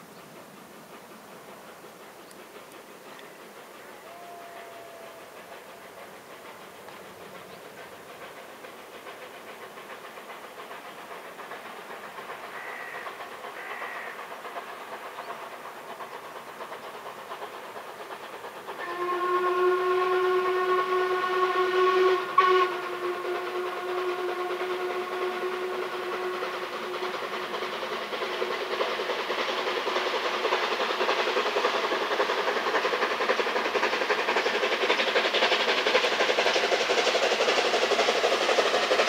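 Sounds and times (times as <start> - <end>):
steam locomotive pulling away: 0.0 - 39.0
steam whistle blowing: 18.8 - 27.3.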